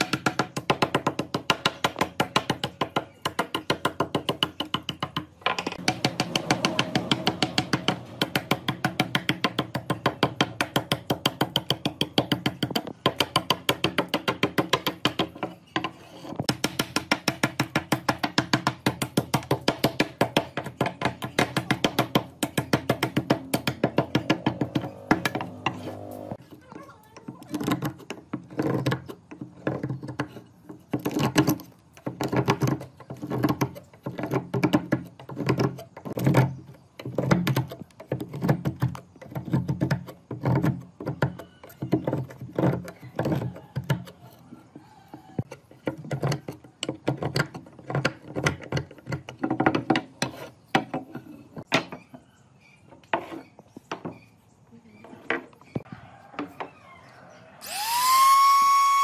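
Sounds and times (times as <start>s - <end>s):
sharp knocks: 4.0s - 15.3s.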